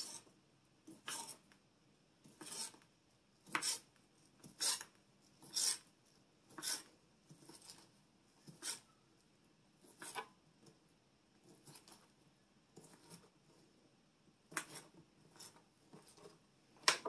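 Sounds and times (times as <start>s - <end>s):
knife slicing sausage on board: 0.9s - 1.4s, 2.3s - 2.8s, 3.4s - 5.9s, 6.5s - 7.8s, 8.5s - 8.9s, 9.8s - 10.3s, 14.5s - 16.2s.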